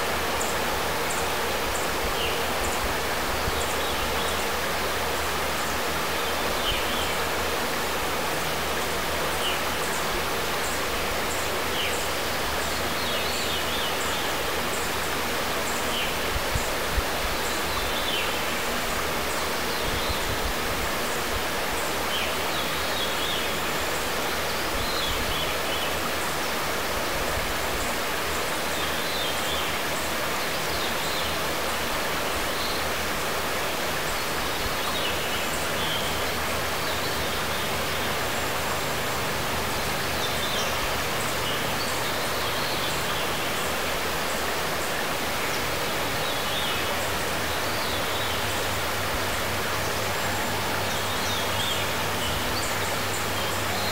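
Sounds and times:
river flowing over gravel: 0.0 - 53.9
birds chirping: 27.7 - 53.9.

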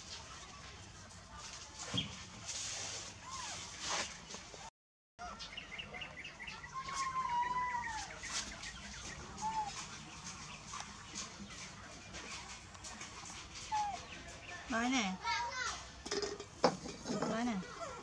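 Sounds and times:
whistled animal call: 9.4 - 9.9.

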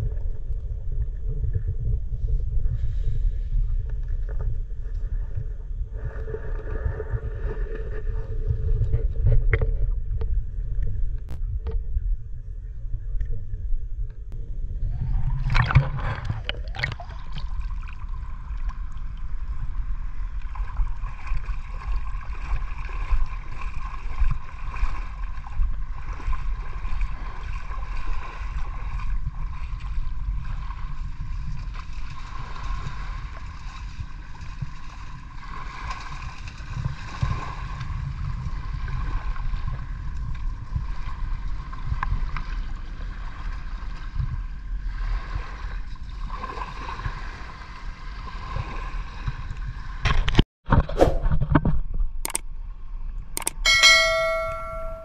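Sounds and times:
water churning and gurgling: 0.0 - 50.2
water rushing: 15.0 - 18.2.

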